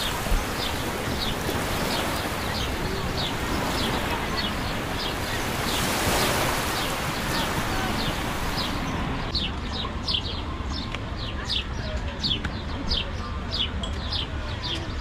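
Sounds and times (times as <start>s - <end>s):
surf: 0.0s - 9.3s
bird chirping: 0.0s - 14.8s
wind: 0.0s - 15.0s.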